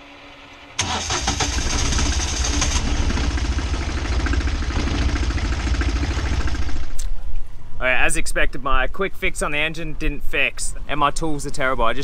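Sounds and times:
diesel engine running: 0.0 - 7.0.

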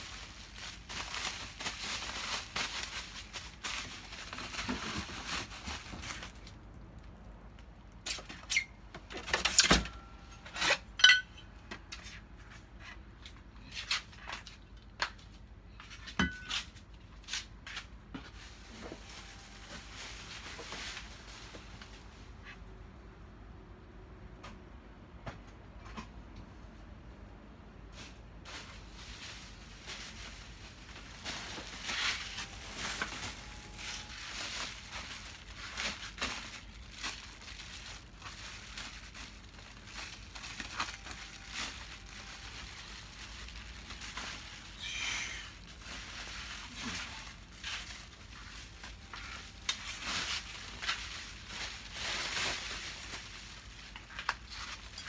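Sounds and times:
bubble wrap crinkling: 0.0 - 8.7, 16.9 - 22.5, 28.0 - 55.0.

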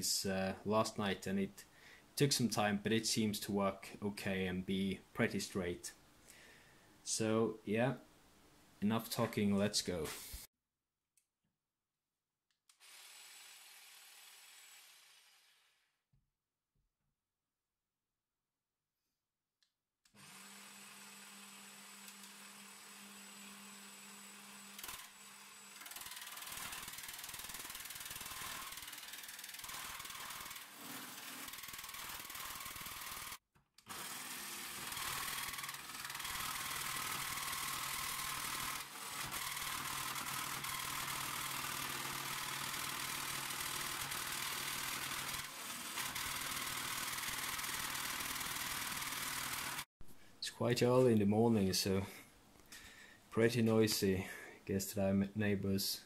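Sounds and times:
jigsaw cutting steel sheet: 12.7 - 16.0, 20.1 - 49.9.

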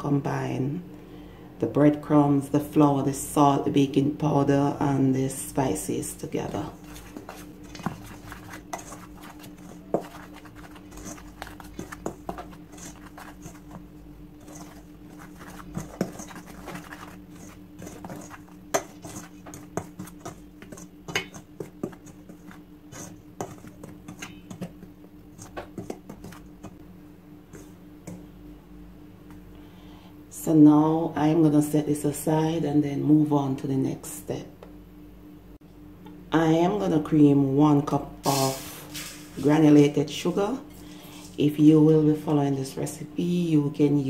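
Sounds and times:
faint steady hum: 0.0 - 44.0
metal spoon scraping steel bowl: 6.0 - 26.8.

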